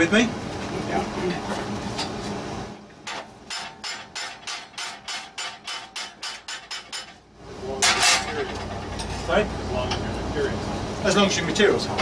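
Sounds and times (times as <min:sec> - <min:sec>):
hammer striking hot steel bar: 0:03.0 - 0:07.2.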